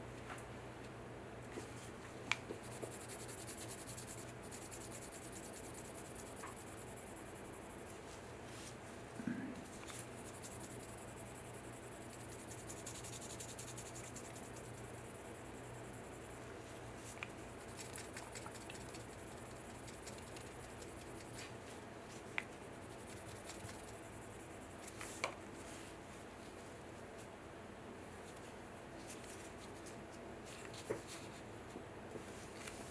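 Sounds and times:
sharp ticks: 17.6 - 21.3.

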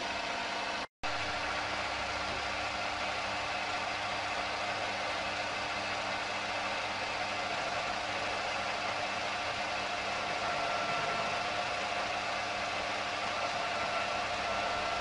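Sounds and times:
lathe motor humming: 0.0 - 15.0
faint high whine: 10.0 - 15.0.

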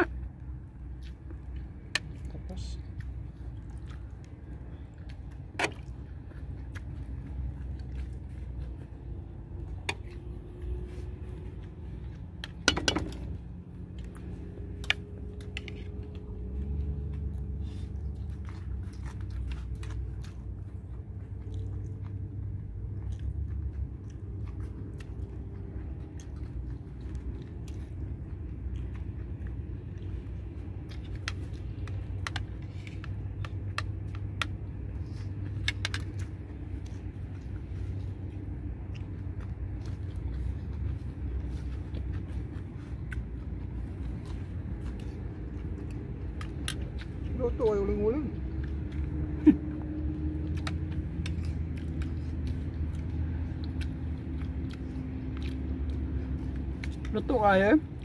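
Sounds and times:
chewing: 0.0 - 58.0
steady low rumble: 0.0 - 58.0.

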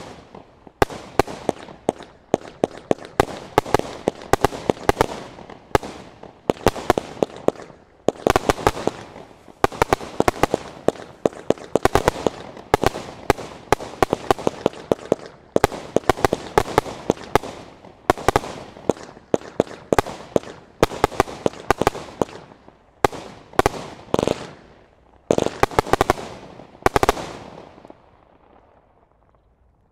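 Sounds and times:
fireworks bangs and pops: 0.0 - 29.5.

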